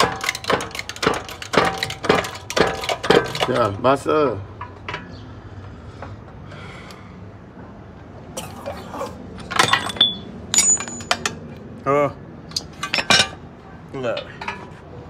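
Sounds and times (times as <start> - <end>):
metal parts and tools clanking: 0.0 - 5.2, 9.4 - 11.6, 12.5 - 14.9.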